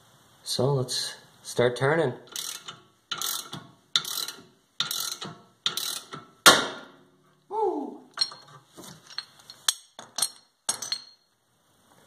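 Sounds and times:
ratchet clicking: 2.3 - 6.3
loud metal crack: 5.1 - 7.0.

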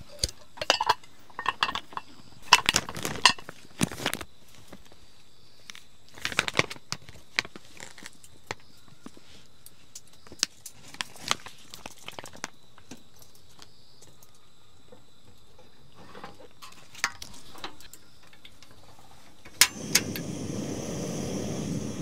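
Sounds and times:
utensils and cookware clinking: 0.1 - 3.5
steady rushing noise: 19.7 - 22.0.

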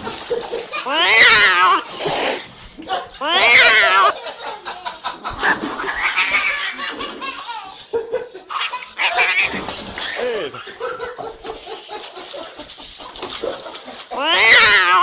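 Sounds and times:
people laughing: 2.8 - 15.0
child giggling: 5.2 - 7.8, 8.5 - 10.9.

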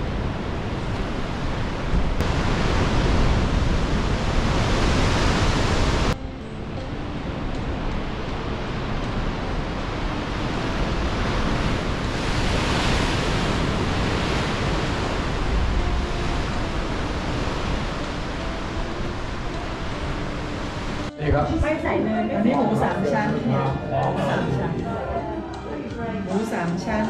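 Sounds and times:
wind buffeting microphone: 0.0 - 6.2, 7.3 - 21.8
ocean surf breaking on rocks: 0.0 - 25.7.

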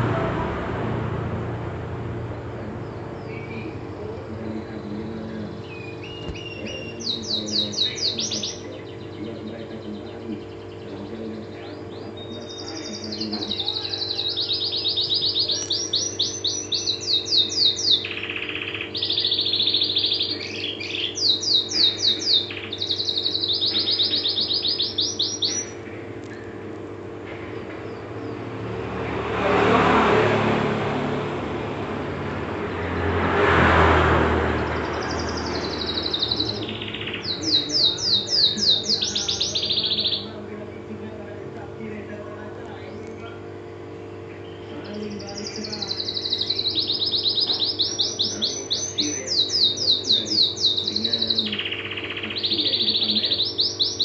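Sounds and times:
rushing noise: 0.0 - 4.0, 28.4 - 37.4
canary singing trills: 0.0 - 54.0.

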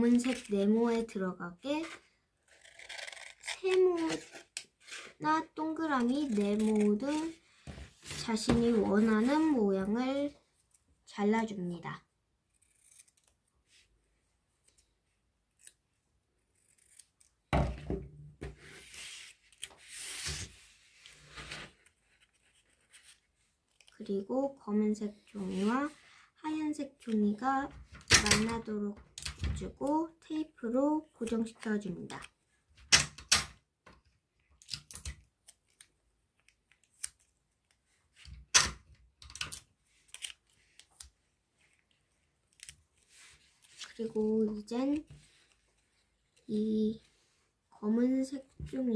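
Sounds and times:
scissors snipping paper: 0.0 - 1.1, 1.8 - 7.4, 12.5 - 13.5, 16.5 - 17.3, 39.3 - 41.1.

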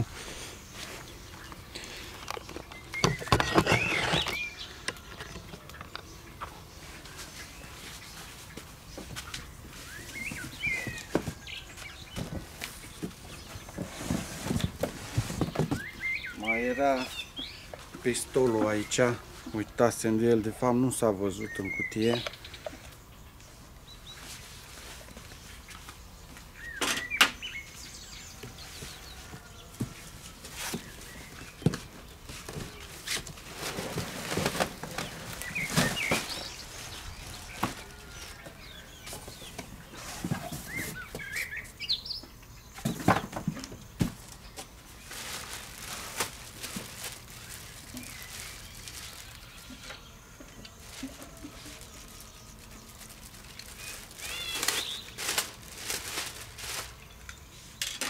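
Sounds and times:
high chirp-like squeaks: 2.8 - 4.6
cardboard box rustling and scraping: 3.0 - 4.7, 9.8 - 16.3, 28.4 - 41.6.

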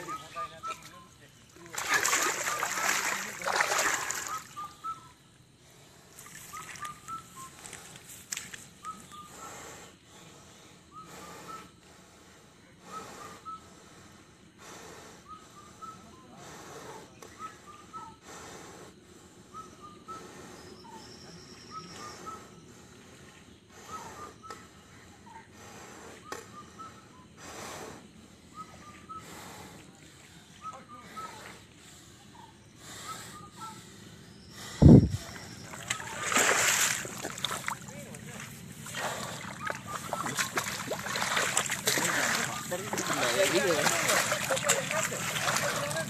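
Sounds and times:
splashing in mud: 1.6 - 4.6, 35.3 - 46.0
elephant breathing through trunk: 31.2 - 45.7.

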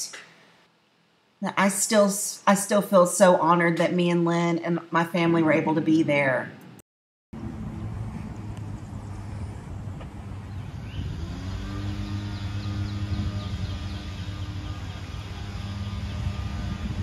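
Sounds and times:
engine drone: 7.4 - 17.0
low rumble of traffic: 7.4 - 17.0
birds chirping: 7.7 - 17.0.

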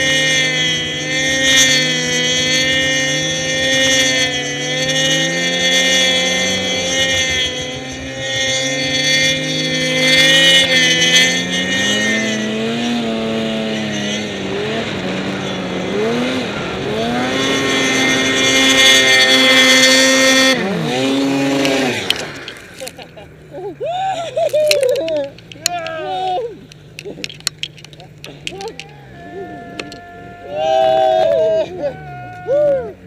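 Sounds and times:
snowmobile engine revving: 0.0 - 33.0.

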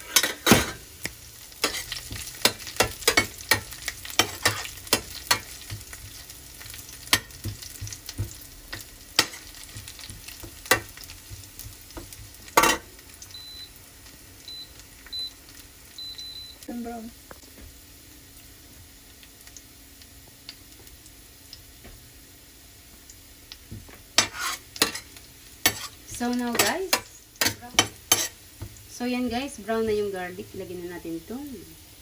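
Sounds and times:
metal spoon scraping a pan: 0.0 - 0.8, 1.6 - 5.8, 8.7 - 9.9, 12.0 - 12.9, 24.2 - 28.4
garlic sizzling in oil: 0.0 - 32.0
spoon knocking on pan: 1.7 - 6.2, 7.1 - 12.8, 25.7 - 28.8.

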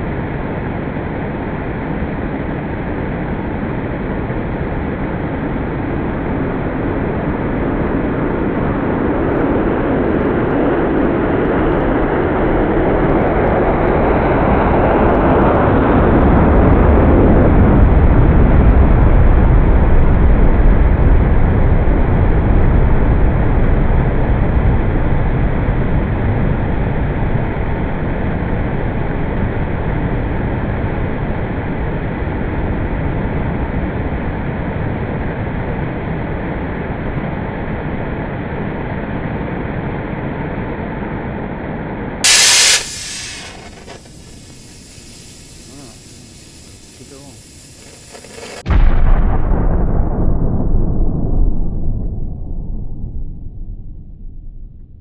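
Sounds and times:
rocket engine burning: 0.0 - 41.0, 42.2 - 55.0
loud hiss: 42.2 - 48.7.

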